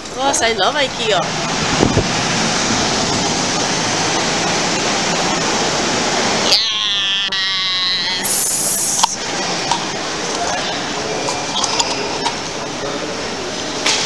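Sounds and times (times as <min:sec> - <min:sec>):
rushing blown air: 0:08.2 - 0:09.2.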